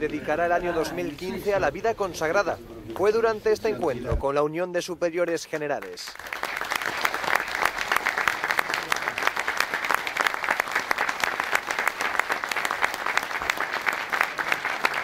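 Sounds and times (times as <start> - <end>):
crowd applauding: 5.8 - 15.0.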